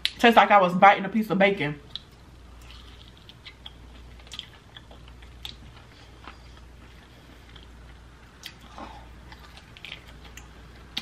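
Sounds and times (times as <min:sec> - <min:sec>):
faint low hum: 0:00.0 - 0:11.0
chewing mouth clicks and smacks: 0:01.9 - 0:07.7, 0:08.4 - 0:11.0.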